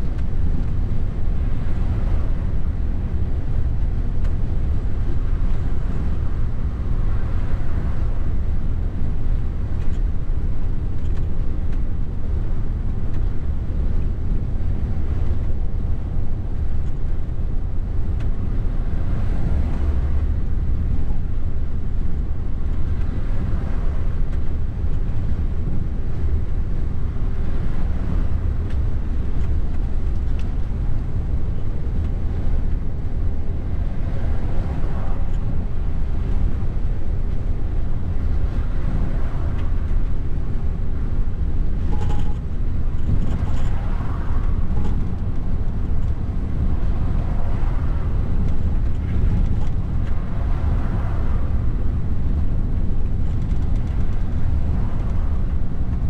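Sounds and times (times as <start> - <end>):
road noise: 0.0 - 56.0
truck diesel engine drone: 0.0 - 56.0.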